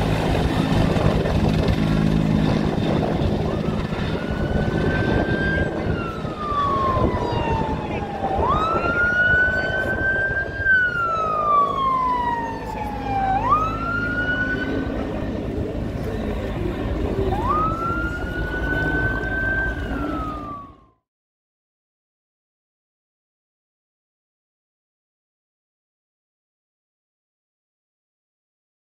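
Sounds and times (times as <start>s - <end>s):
low engine rumble: 0.0s - 21.0s
emergency siren wailing: 0.0s - 21.1s.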